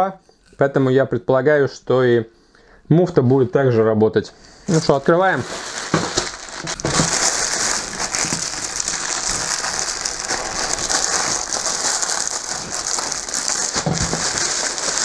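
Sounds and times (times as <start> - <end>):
plastic bag crinkling: 4.5 - 15.0.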